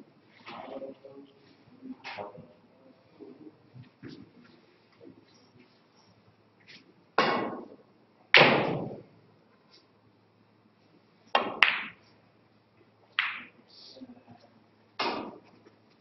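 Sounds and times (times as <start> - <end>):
cue tip striking ball: 11.4 - 12.0, 13.2 - 13.6, 15.0 - 15.4
snooker balls knocking: 11.4 - 12.0, 13.2 - 13.6, 15.0 - 15.5.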